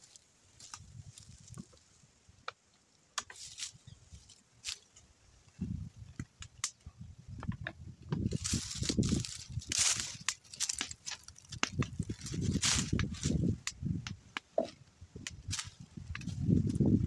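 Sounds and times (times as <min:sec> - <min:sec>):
footsteps on dry leaves: 0:03.3 - 0:04.9, 0:08.2 - 0:13.6
clicks and knocks on wooden beams: 0:07.4 - 0:08.2.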